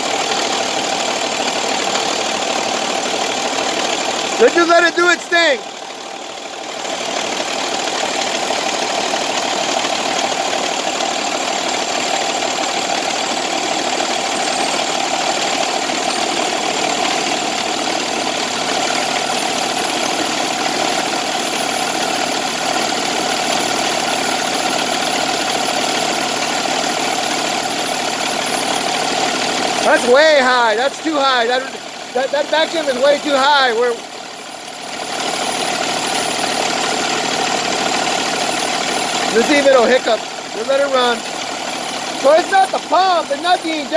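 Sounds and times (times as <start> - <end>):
truck diesel engine revving: 0.0 - 43.9.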